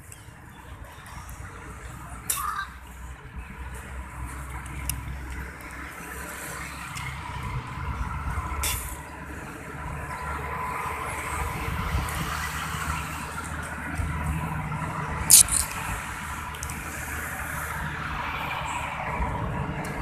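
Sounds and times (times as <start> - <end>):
road traffic passing: 0.0 - 20.0
short click: 15.3 - 15.7.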